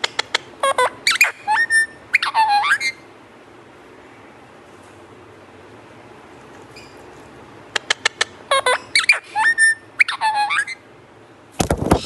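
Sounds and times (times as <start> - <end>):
parakeet squeaky calls: 0.1 - 3.1, 7.8 - 10.9
wings fluttering: 11.6 - 12.0.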